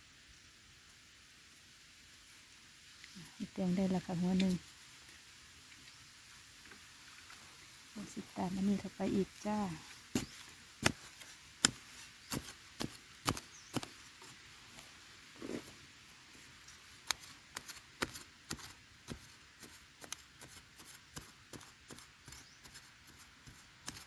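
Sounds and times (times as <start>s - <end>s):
digging tool scraping dry earth: 8.1s - 24.0s.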